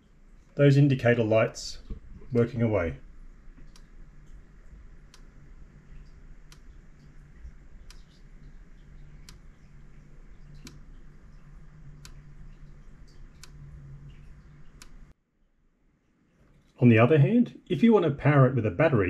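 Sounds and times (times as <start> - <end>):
low steady hum: 0.0 - 19.0
electric fence energiser clicks: 1.4 - 15.1.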